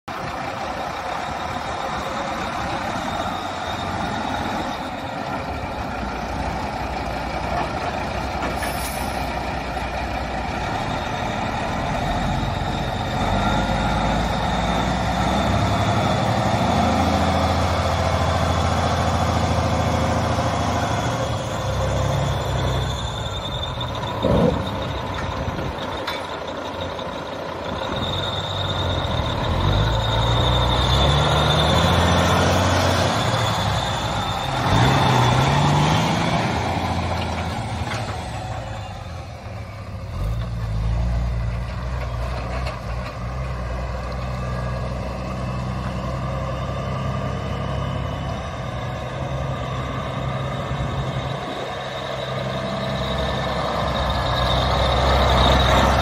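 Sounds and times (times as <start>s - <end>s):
truck diesel engine running: 0.0s - 56.0s
high whistle: 21.2s - 25.3s, 27.7s - 32.0s.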